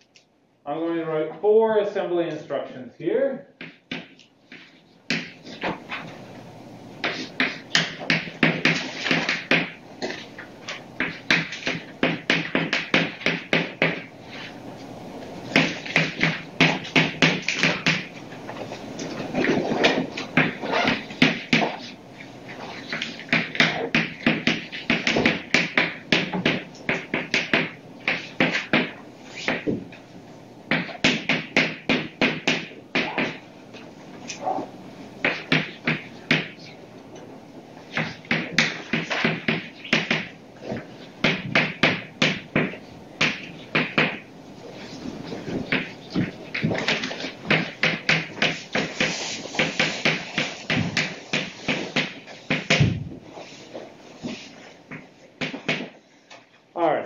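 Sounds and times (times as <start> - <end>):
chalk scraping on blackboard: 48.4 - 52.6.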